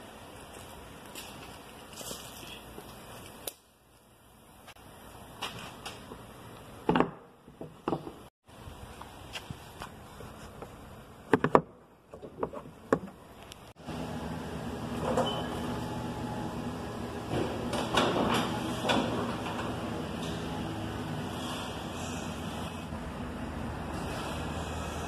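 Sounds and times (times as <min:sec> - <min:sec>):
steady low hum: 0:13.2 - 0:25.0
hood clunking and rattling: 0:17.1 - 0:20.7.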